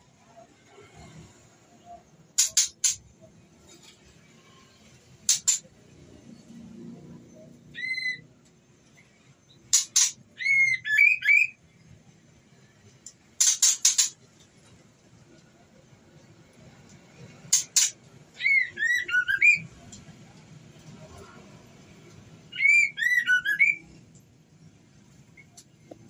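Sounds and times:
bird clicking calls: 2.4 - 3.0, 5.3 - 5.6, 13.4 - 14.2, 17.5 - 18.0.

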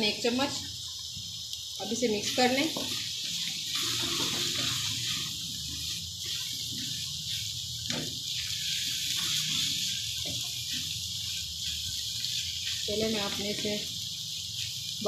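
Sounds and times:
lentils sizzling in oil: 0.0 - 15.0
wooden spoon scraping pan: 2.3 - 8.4.

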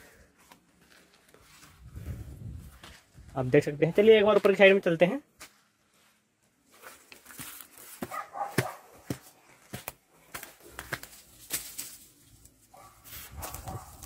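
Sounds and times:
footsteps crunching dry grass: 0.0 - 14.0
dog-like bark: 8.0 - 9.1, 12.7 - 14.0.

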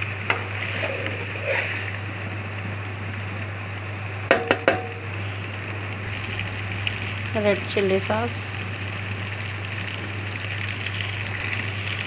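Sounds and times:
constant hum: 0.0 - 12.0
food sizzling in a pan: 4.0 - 12.0.

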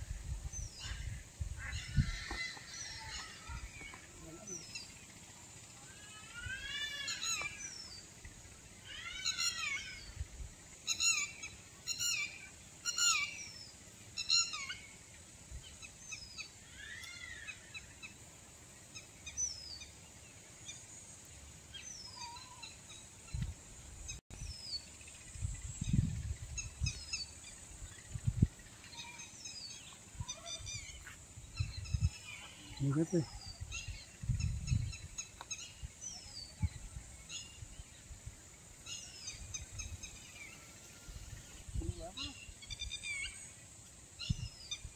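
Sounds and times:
bird calling: 0.8 - 18.2, 21.7 - 23.4.

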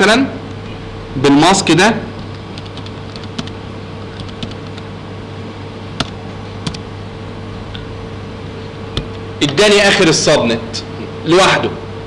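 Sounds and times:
low electrical hum and hiss: 0.0 - 12.0
keyboard keys clicking: 2.3 - 4.8, 6.0 - 6.8.

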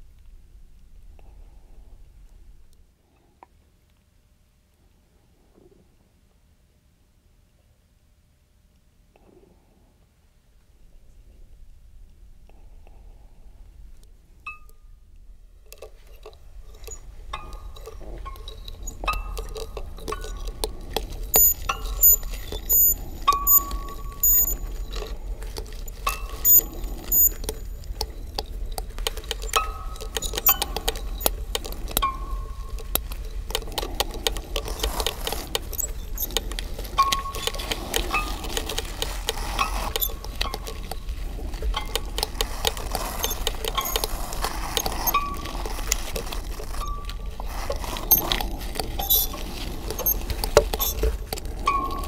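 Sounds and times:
small clicks clinks and scrapes: 15.6 - 52.0.

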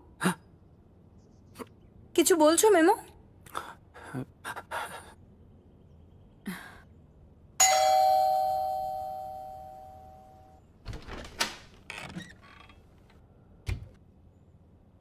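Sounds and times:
two-tone doorbell ringing: 7.6 - 10.6.

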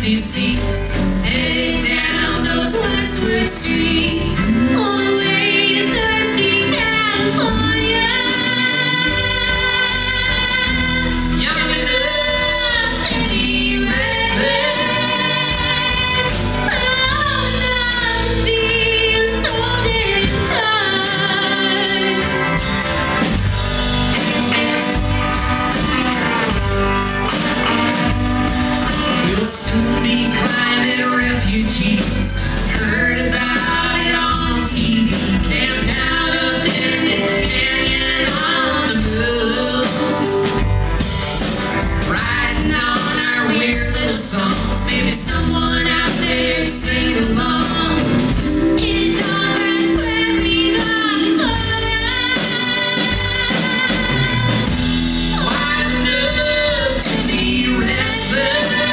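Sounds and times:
acoustic guitar: 0.0 - 58.9
drums: 0.0 - 58.9
upright bass: 0.0 - 58.9
person singing: 29.1 - 40.6, 42.0 - 58.9.

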